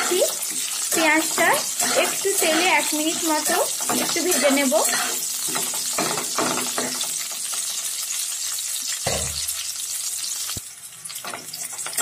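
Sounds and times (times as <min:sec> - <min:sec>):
spatula stirring: 0:00.0 - 0:07.1
onions sizzling in hot oil: 0:00.0 - 0:12.0.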